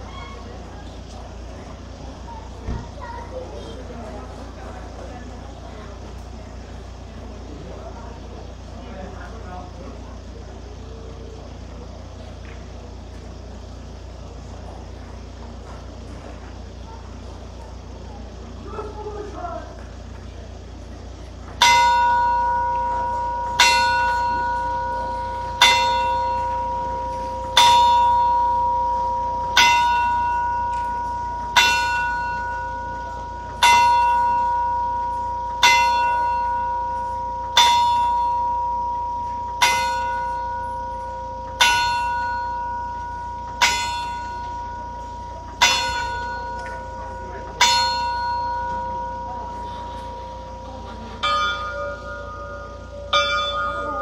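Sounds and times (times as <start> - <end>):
clock tower bell striking: 20.6 - 54.0.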